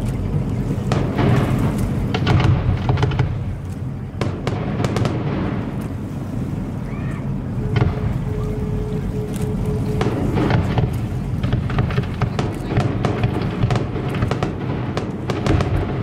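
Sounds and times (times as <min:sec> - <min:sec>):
steady low rumble: 0:00.0 - 0:16.0
fireworks bangs and crackling: 0:00.3 - 0:06.0, 0:07.7 - 0:08.3, 0:09.9 - 0:16.0.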